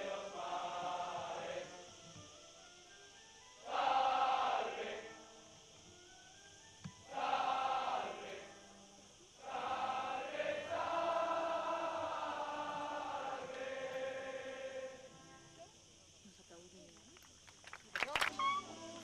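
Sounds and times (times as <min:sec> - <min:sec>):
voices chanting: 0:00.0 - 0:02.2, 0:03.5 - 0:05.8, 0:07.0 - 0:16.0.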